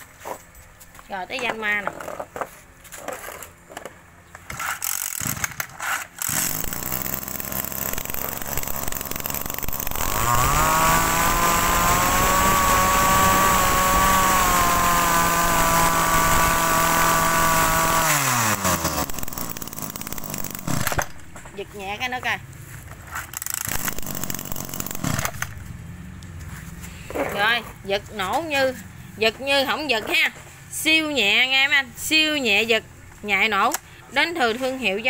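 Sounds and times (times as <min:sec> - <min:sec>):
brush-cutter engine running: 0:06.2 - 0:21.2, 0:23.3 - 0:25.7.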